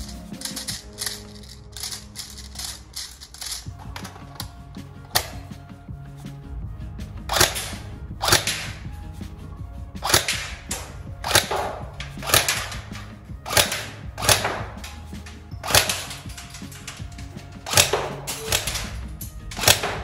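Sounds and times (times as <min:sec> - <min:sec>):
airsoft rifle shots: 0:07.3 - 0:08.9, 0:10.0 - 0:15.0, 0:15.6 - 0:16.5, 0:17.6 - 0:19.0, 0:19.6 - 0:20.0.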